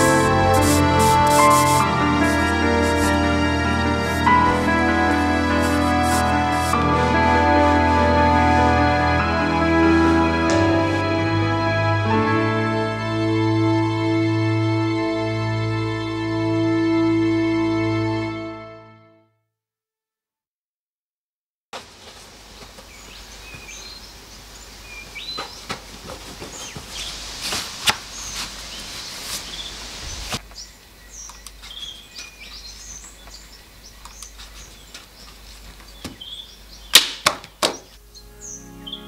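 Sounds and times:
steady outdoor hiss: 0:00.0 - 0:11.6, 0:21.8 - 0:39.0
birds chirping: 0:22.3 - 0:39.0.

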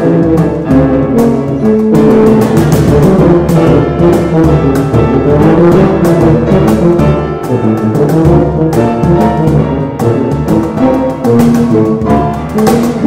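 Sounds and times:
piano: 0:00.0 - 0:13.0
tubas playing: 0:00.0 - 0:13.0
cajon strikes: 0:00.4 - 0:03.6.

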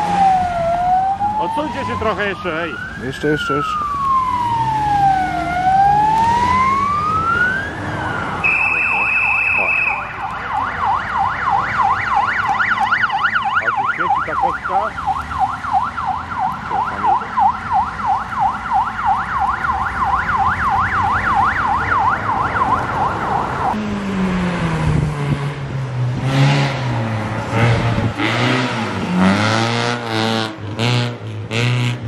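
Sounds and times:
siren yelping: 0:00.0 - 0:23.8
rally car engine revving: 0:23.7 - 0:32.0.

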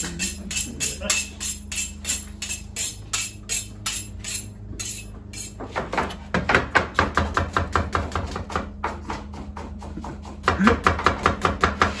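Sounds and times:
knife honing on sharpening steel: 0:00.0 - 0:05.5.

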